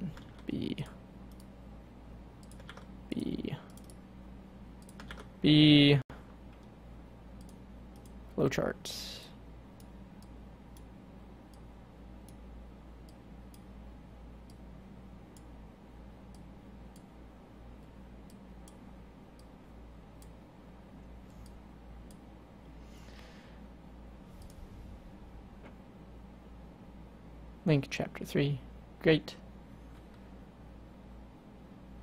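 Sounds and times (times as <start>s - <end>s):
low electrical hum: 0.0s - 32.0s.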